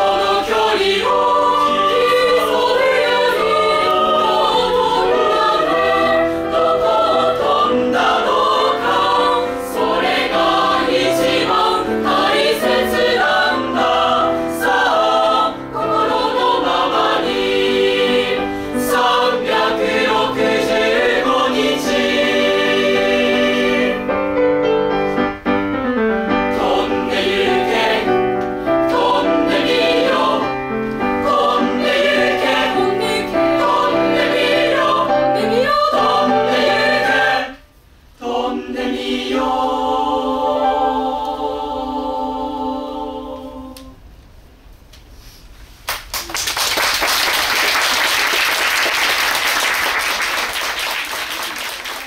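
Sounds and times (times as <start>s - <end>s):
choir singing: 0.0s - 24.4s, 26.4s - 37.6s, 38.2s - 44.0s
audience applause: 45.9s - 52.0s.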